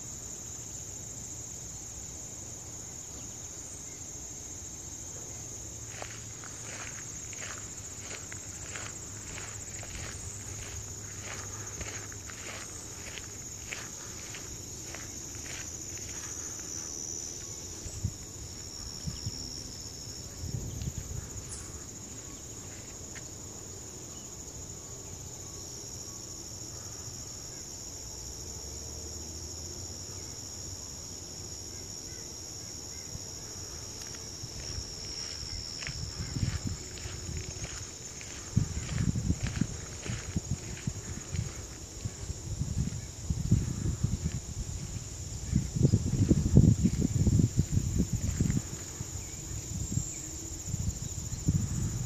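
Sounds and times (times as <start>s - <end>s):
insects chorus: 0.0s - 52.0s
footsteps on gravel: 5.8s - 17.4s, 34.0s - 43.0s.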